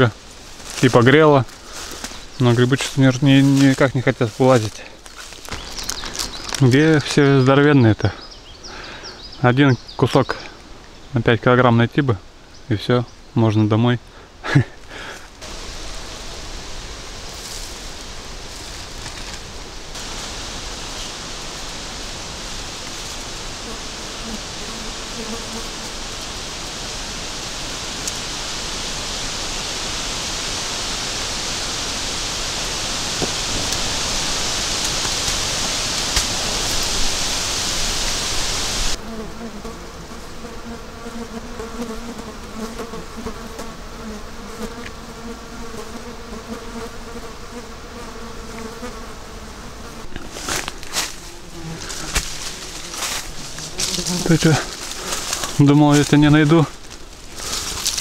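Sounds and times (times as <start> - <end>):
twigs and leaves crackling: 0.0 - 7.7, 17.2 - 21.8, 32.5 - 38.2, 50.1 - 58.0
wind hissing through leaves: 0.0 - 10.0, 12.2 - 39.3, 42.8 - 58.0
fly buzzing: 1.5 - 6.6, 15.3 - 58.0.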